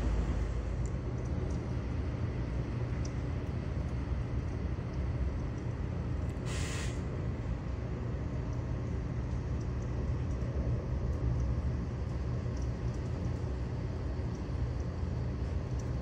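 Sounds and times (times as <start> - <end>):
faint high ticks: 14.3 - 15.0.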